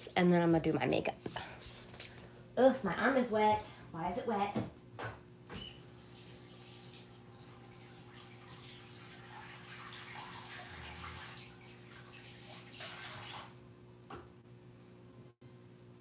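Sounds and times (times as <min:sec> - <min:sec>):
water tap running: 0:05.6 - 0:13.8.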